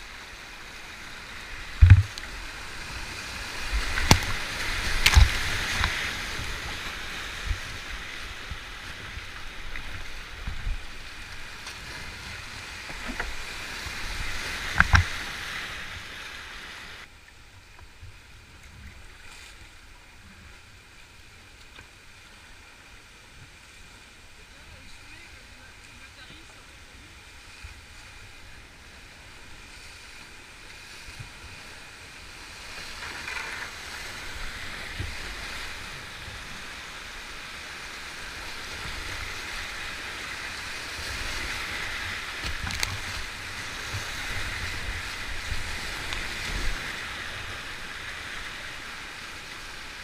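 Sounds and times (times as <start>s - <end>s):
calm river water flowing: 0.0s - 50.0s
sharp knocks on kayak: 1.8s - 2.2s.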